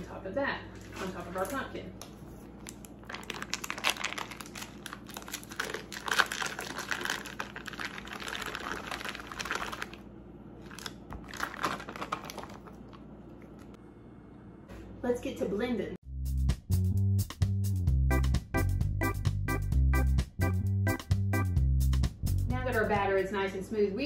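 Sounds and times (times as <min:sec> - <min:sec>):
foil wrapper crinkling: 0:00.9 - 0:13.7.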